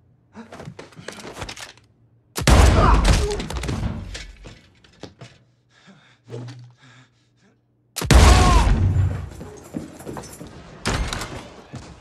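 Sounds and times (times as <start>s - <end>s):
gunshots indoors: 2.4s - 4.4s, 8.0s - 9.4s, 10.4s - 12.0s.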